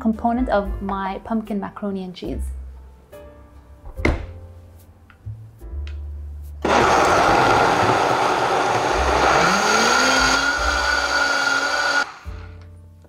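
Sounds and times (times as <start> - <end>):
blender running: 6.6 - 12.6.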